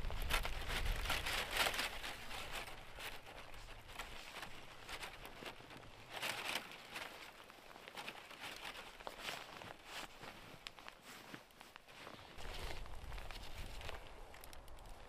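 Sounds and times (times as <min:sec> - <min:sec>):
footsteps crunching in snow: 0:00.0 - 0:15.0
rustling: 0:00.0 - 0:15.0.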